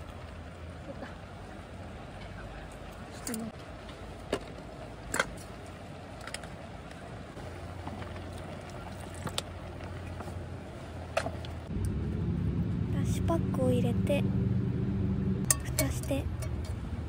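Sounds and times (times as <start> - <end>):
metal camping gear clinking: 15.5 - 16.9.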